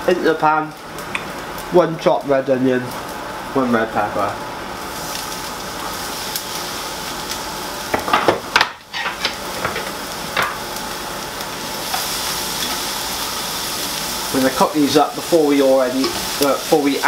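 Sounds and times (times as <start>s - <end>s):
vegetables sizzling in a frying pan: 0.0s - 17.0s.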